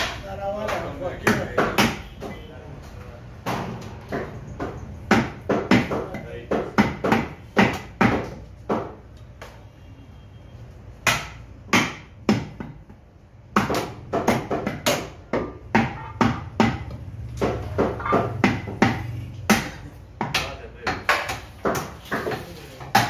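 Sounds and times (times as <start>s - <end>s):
meat cleaver chopping on wood: 4.1s - 9.0s, 11.0s - 12.8s, 13.5s - 23.0s.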